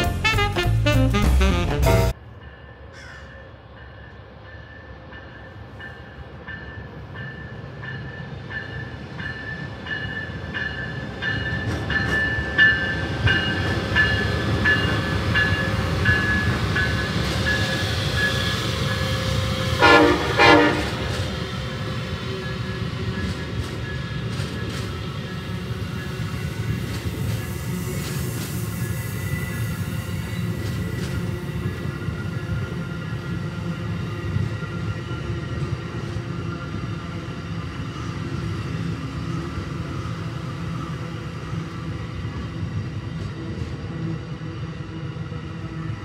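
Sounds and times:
train horn blasts: 0.0 - 2.2, 18.7 - 21.4
train engine and wheel noise: 1.9 - 46.0.

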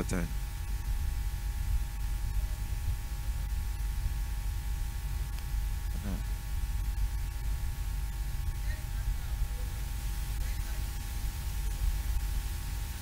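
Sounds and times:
electrical hum and hiss: 0.0 - 13.0
low rumble: 0.0 - 13.0.

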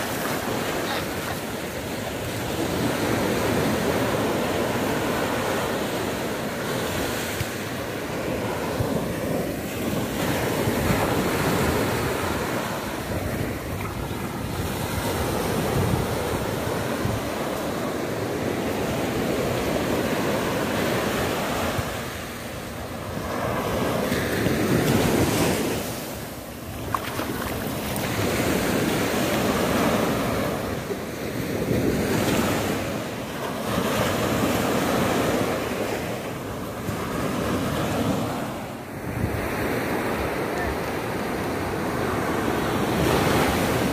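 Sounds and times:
surf breaking on beach: 0.0 - 43.9
wind buffeting microphone: 8.0 - 30.8.

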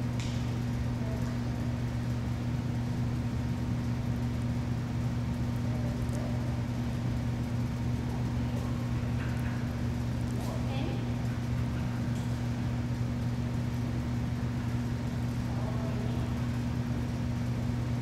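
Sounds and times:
low machinery hum: 0.0 - 18.0.

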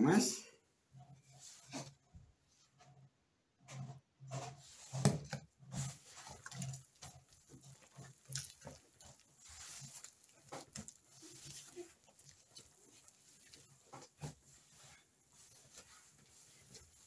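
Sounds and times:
wet dough squelching and slapping: 4.5 - 17.0.

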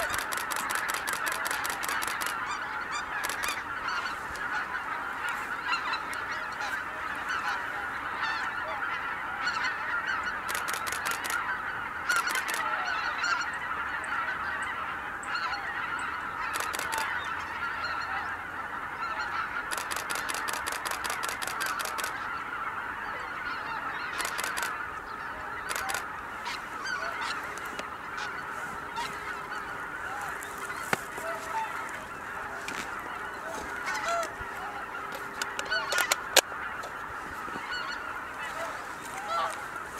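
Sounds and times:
rapid clicking bursts: 0.0 - 2.5, 3.1 - 3.6, 10.5 - 11.4, 12.1 - 12.7, 16.5 - 17.1, 19.7 - 22.2, 24.2 - 24.8, 25.7 - 26.0
flock of geese calling: 0.0 - 39.9.

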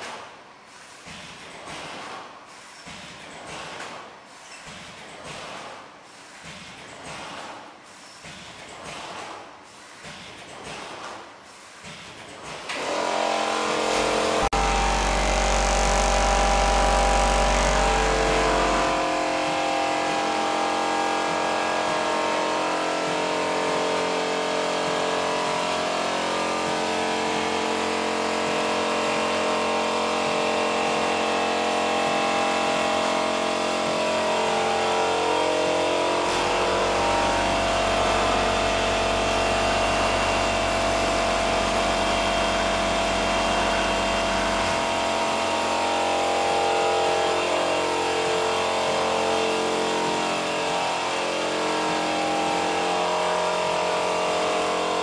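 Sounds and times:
packing machine hum: 0.0 - 55.0
deeper low hum: 13.3 - 55.0.

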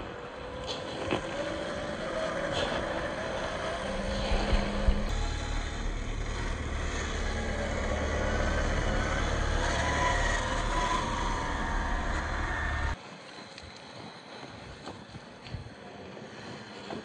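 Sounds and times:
electric motor whining: 0.0 - 13.0
wind on the microphone: 0.0 - 17.0.

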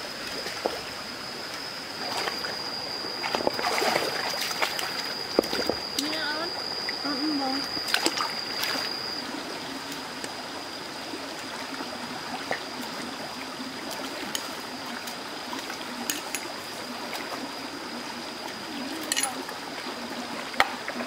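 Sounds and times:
rocky stream flowing: 0.0 - 21.0.

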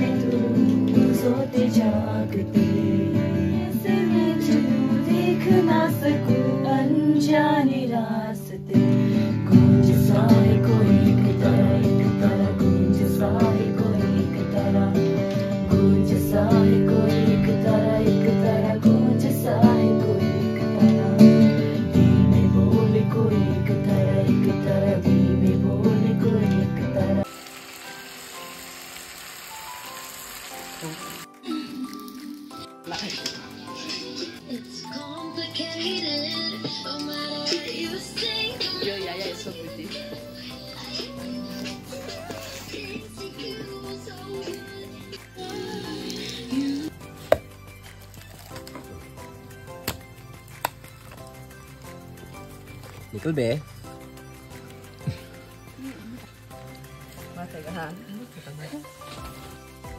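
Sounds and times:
acoustic guitar strumming: 0.0 - 7.0
woman singing: 0.0 - 27.3, 33.8 - 47.0
acoustic guitar: 0.0 - 59.9
chicken sizzling in a pan: 27.3 - 32.4.

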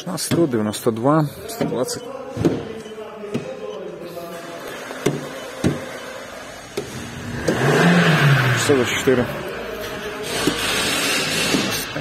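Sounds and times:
car engine: 4.7 - 12.0.

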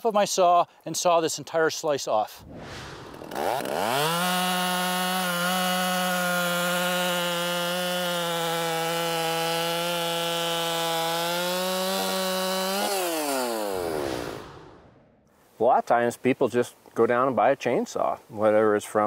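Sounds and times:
chainsaw cutting log: 3.3 - 14.0.

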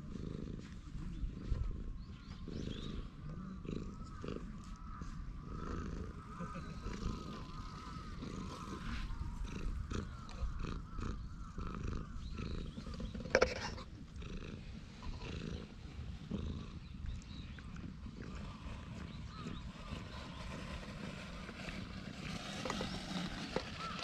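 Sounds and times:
cat purring: 0.0 - 24.0.

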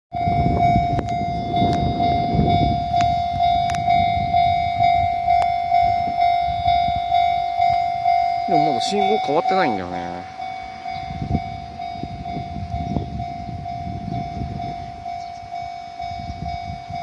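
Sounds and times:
level crossing warning bell: 0.1 - 17.0.

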